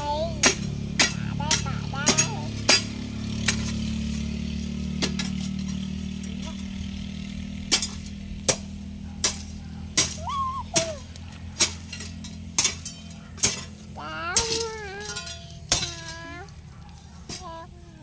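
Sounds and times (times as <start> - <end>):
hoe chopping into soil: 0.4 - 6.0, 7.5 - 14.8.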